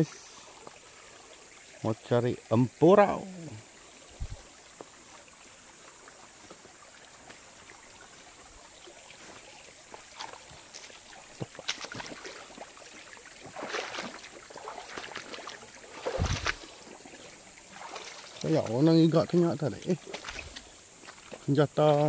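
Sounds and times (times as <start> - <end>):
water flowing over rocks: 0.0 - 22.0.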